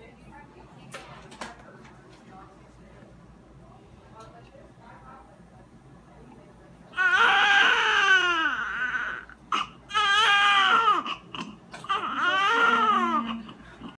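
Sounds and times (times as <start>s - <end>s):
newborn baby crying: 6.9s - 13.6s.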